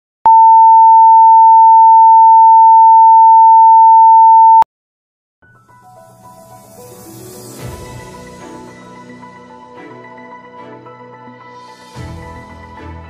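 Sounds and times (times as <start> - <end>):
high-pitched test tone beep: 0.3 - 4.6
soft music: 5.4 - 13.0.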